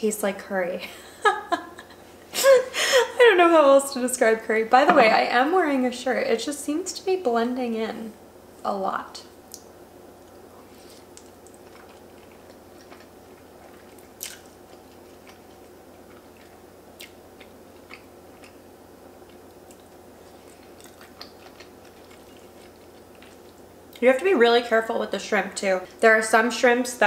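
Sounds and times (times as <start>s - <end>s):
faint steady hum: 0.0s - 27.0s
person chewing food: 10.2s - 24.0s.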